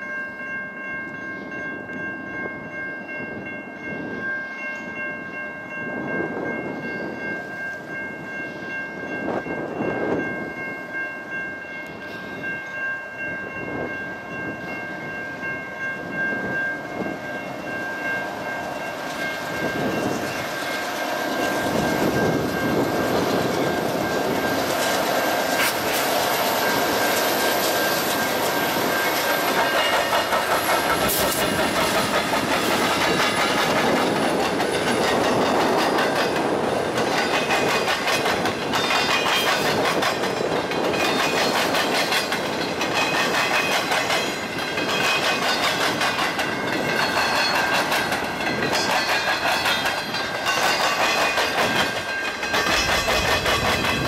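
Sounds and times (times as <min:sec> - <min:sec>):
freight locomotives passing: 0:00.0 - 0:54.0
steady high tones: 0:13.8 - 0:39.7
train cars clacking over rail joints: 0:18.4 - 0:54.0.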